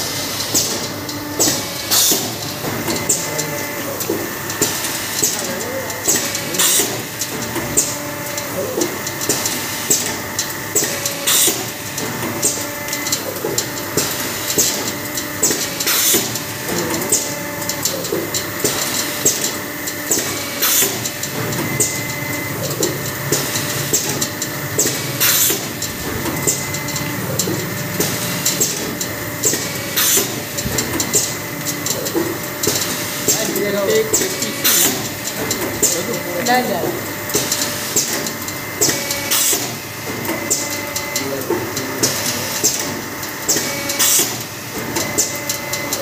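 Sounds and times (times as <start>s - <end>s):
paper plate machine humming: 0.0s - 46.0s
machine clicks and knocks: 0.4s - 46.0s.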